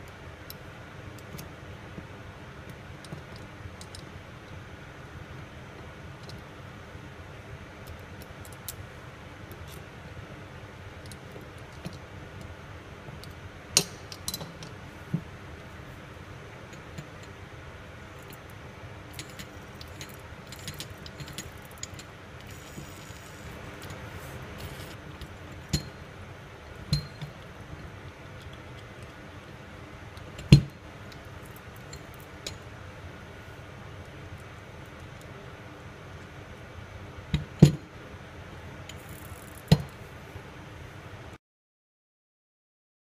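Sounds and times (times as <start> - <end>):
steady background hiss: 0.0 - 41.4
small metal parts clinking: 19.1 - 25.0.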